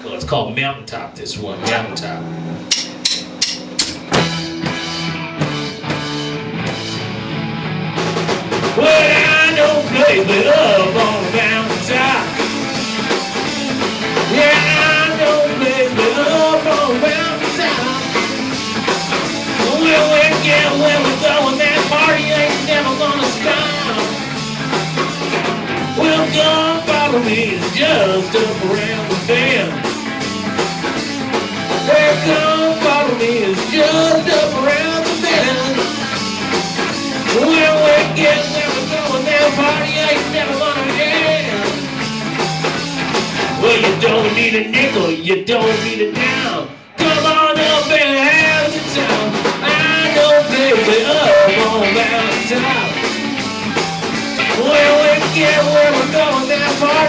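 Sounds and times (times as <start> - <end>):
live rock band playing: 0.0 - 57.0
wavering electric guitar lead: 0.0 - 57.0.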